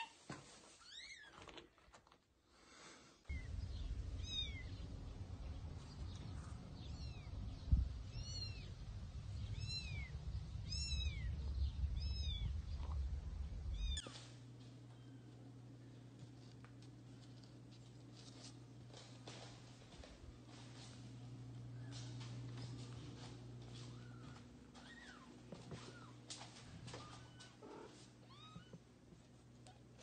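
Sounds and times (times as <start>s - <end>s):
steady low rumble: 3.3s - 17.8s.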